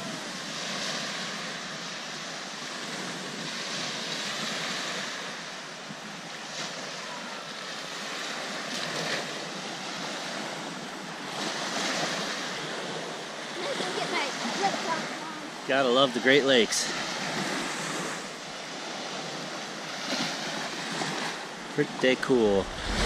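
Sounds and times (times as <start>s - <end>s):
waves washing onto shore: 0.0s - 23.0s
wind: 0.0s - 23.0s.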